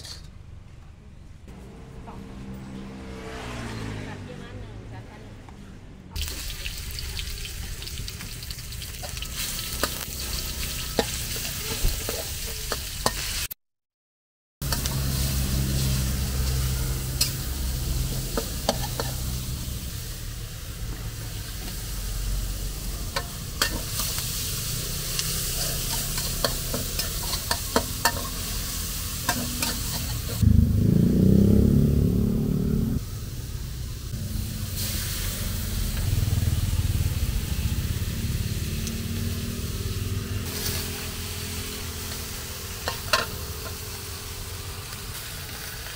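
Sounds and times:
metal spatula scraping a pan: 0.0s - 0.3s, 23.1s - 24.4s, 25.0s - 30.4s
meat sizzling in a wok: 6.2s - 13.5s, 14.6s - 31.8s, 33.1s - 45.9s
low rumble: 30.4s - 40.5s.

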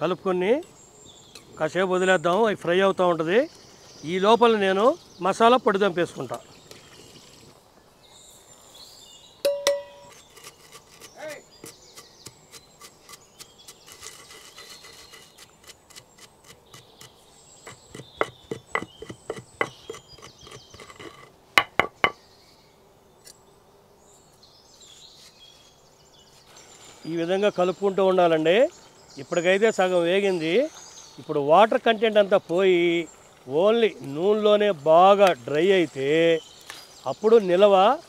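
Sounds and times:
faint birds chirping: 0.0s - 38.0s
pestle pounding in stone mortar: 17.6s - 22.2s.

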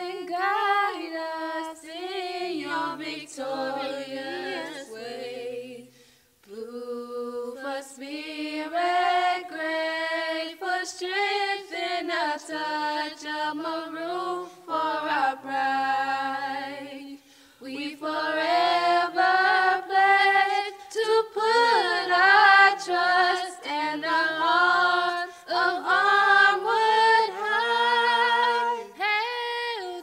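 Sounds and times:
person singing: 2.6s - 5.2s, 26.7s - 30.0s.

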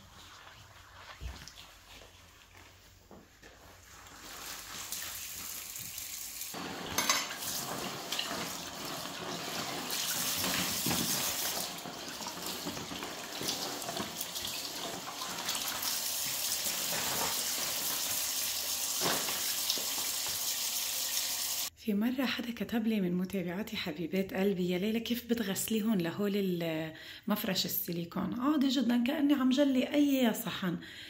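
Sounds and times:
dishes clinking and clattering: 6.6s - 8.7s.

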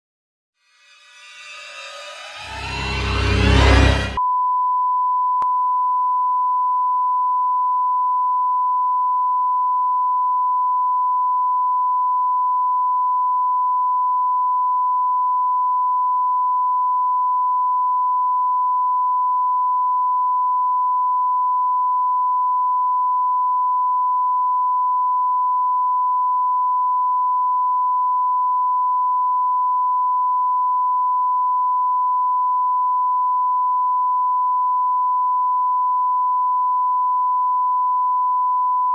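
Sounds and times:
censor bleep tone: 4.1s - 38.9s.

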